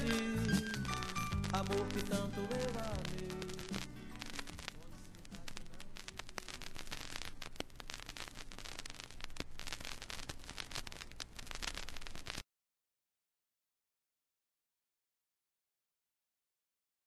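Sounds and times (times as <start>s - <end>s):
record surface crackling and hiss: 0.0s - 12.5s.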